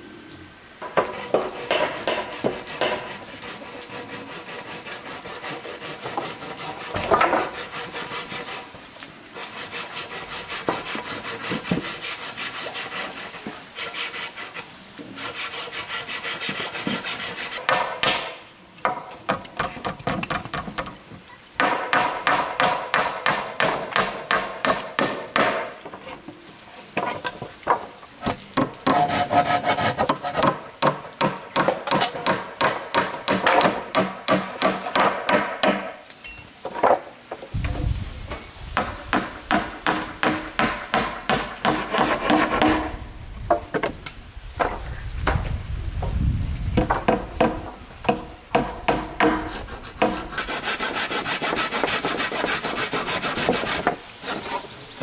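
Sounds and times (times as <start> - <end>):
hand tool rubbing wood: 0.8 - 17.6, 28.6 - 30.6, 38.8 - 42.9, 48.1 - 54.8.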